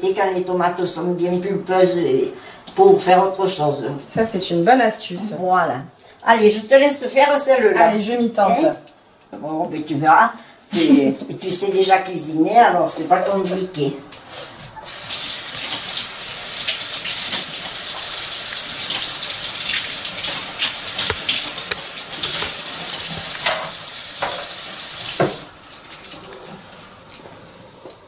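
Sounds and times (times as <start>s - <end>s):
tap water running into sink: 14.9s - 25.5s.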